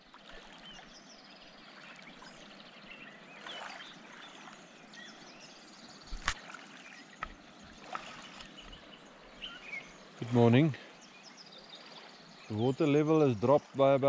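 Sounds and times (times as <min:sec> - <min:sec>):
small birds chirping: 0:00.0 - 0:14.0
river water rushing: 0:06.1 - 0:11.0.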